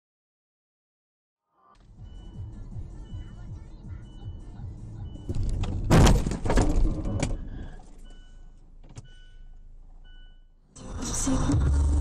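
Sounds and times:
car crash impact: 5.4 - 7.2.

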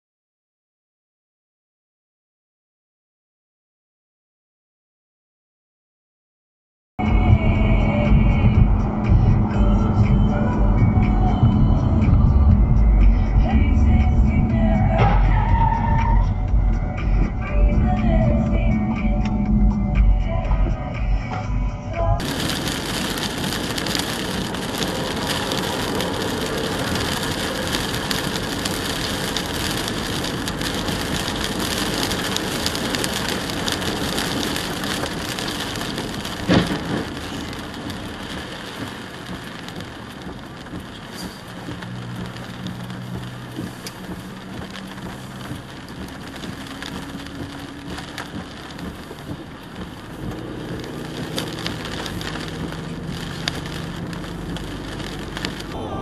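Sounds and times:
low hum: 7.0 - 21.2, 50.6 - 56.0
wet road tyre noise: 7.0 - 56.0
rain hiss: 22.2 - 56.0.

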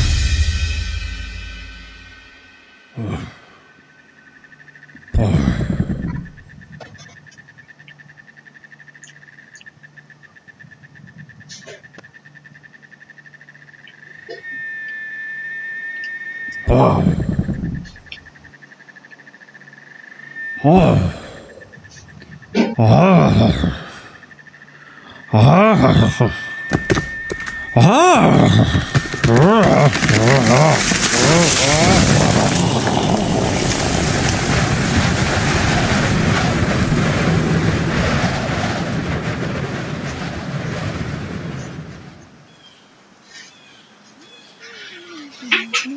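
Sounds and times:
high cricket-like chirring: 0.0 - 44.4
loud animal calls: 3.0 - 36.4
dust cloud rushing rumble: 5.2 - 6.8, 16.5 - 18.4, 25.3 - 42.4.

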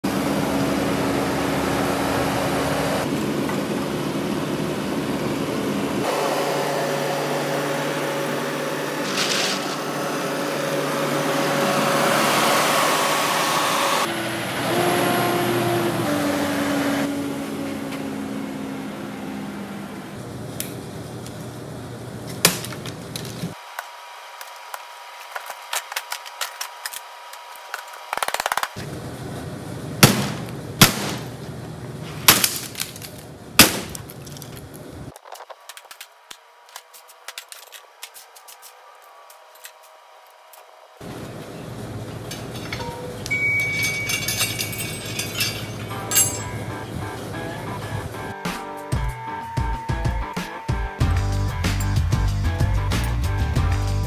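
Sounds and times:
skid steer engine running: 0.0 - 22.1, 45.7 - 48.5.

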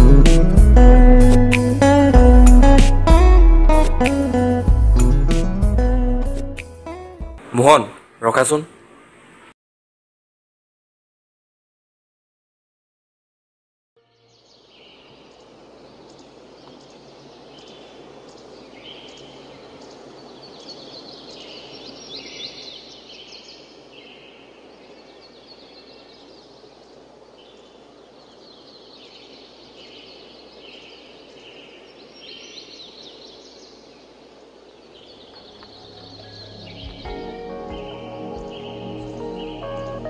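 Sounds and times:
birds calling: 14.2 - 40.0.

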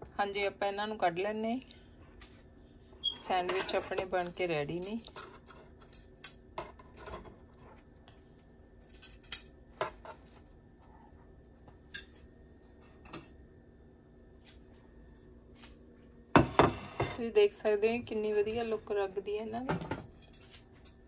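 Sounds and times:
faint steady hum: 0.0 - 21.0
metal tongs clicking on plates: 11.9 - 12.2.

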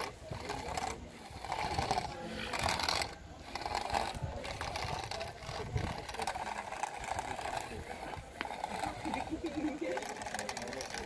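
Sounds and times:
small electric motors whirring: 0.0 - 11.0.

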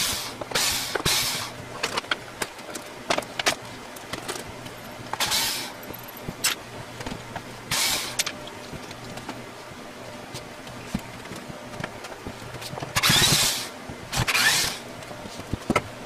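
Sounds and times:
cordless drill whirring: 13.0 - 14.8.

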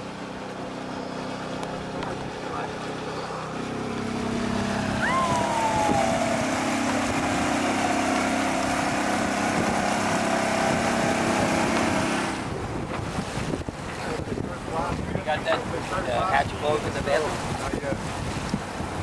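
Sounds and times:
outboard motor running: 0.0 - 19.0
wind on microphone: 4.3 - 19.0
falling whistle: 5.0 - 6.4.

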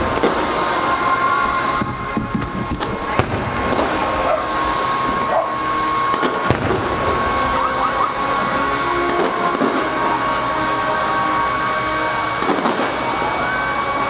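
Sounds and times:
firework shells bursting with bangs: 0.0 - 10.1, 12.3 - 13.2
small firework bursts and crackle: 0.0 - 14.0
steady high tone: 0.0 - 14.0.

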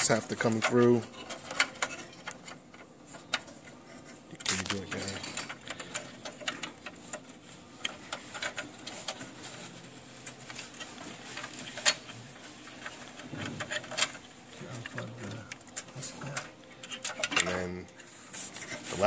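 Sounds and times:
sheet metal parts clicking and tapping: 0.0 - 9.7, 10.5 - 18.0.

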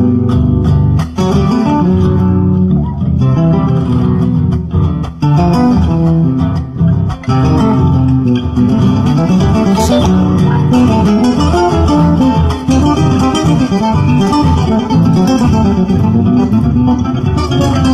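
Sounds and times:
acoustic guitars plucked: 0.0 - 10.6.

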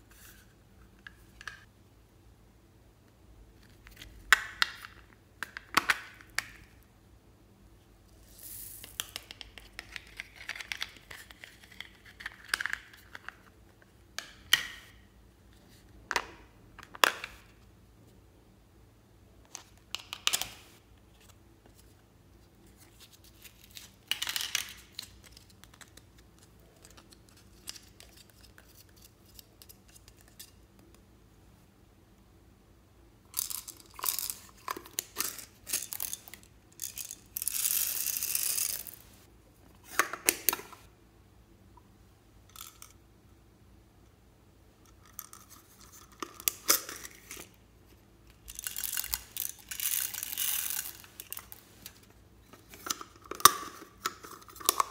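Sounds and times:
small beads rattling onto slime: 48.5 - 51.6.

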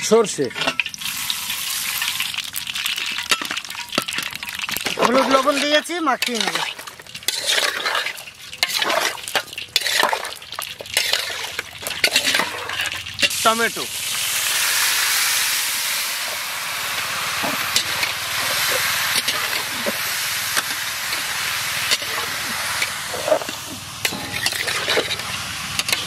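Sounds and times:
tomatoes sizzling in hot oil: 0.0 - 26.0.

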